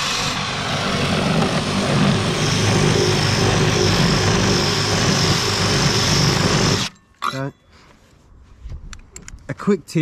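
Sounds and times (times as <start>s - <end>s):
drill boring into wood: 0.0s - 6.9s
high whine: 0.0s - 7.2s.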